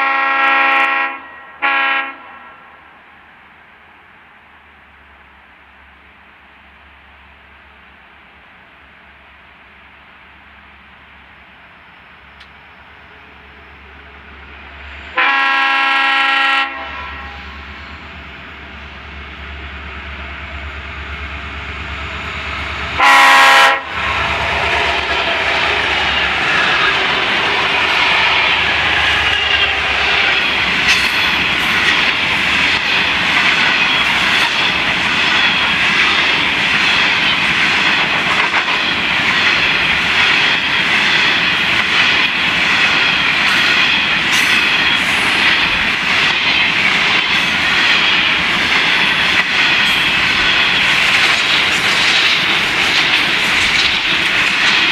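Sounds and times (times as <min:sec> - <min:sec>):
train horn blast: 0:00.0 - 0:02.8, 0:15.1 - 0:17.7, 0:22.9 - 0:30.6
diesel locomotive rumble: 0:08.6 - 0:54.9
train wheels clattering on rails: 0:23.8 - 0:54.9.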